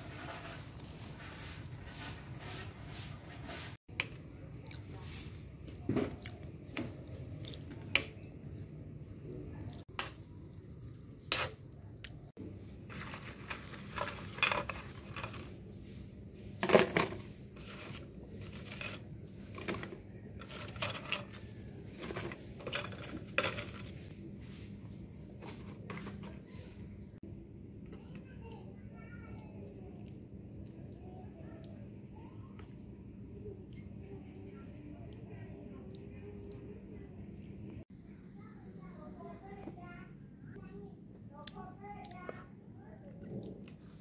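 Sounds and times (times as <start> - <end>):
hands handling food in plastic bowl: 12.8 - 15.6, 16.6 - 24.1.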